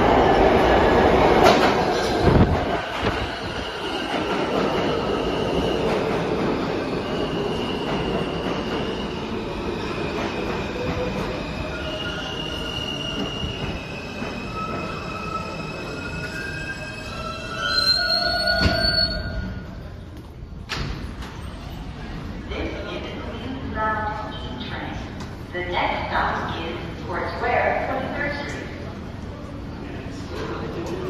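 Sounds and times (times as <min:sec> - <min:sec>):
subway train rumbling: 0:00.0 - 0:31.0
high-pitched squeals: 0:11.7 - 0:19.6.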